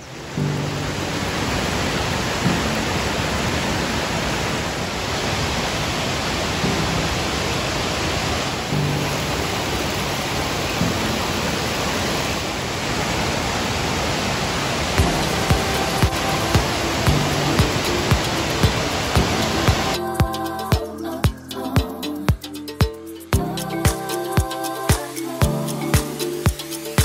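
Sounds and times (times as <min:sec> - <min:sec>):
waterfall roaring: 0:00.0 - 0:20.9.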